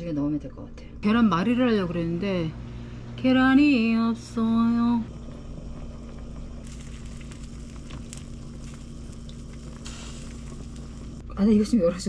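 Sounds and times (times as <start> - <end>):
constant low hum: 0.0 - 12.0
even hiss: 6.5 - 11.2.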